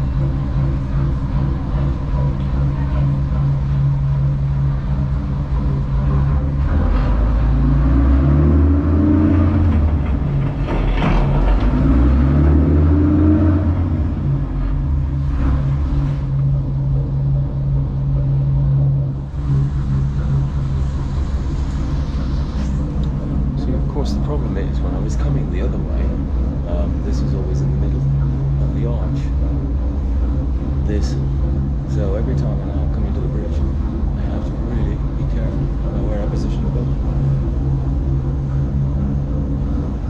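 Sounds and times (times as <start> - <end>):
boat diesel engine running: 0.0 - 40.0.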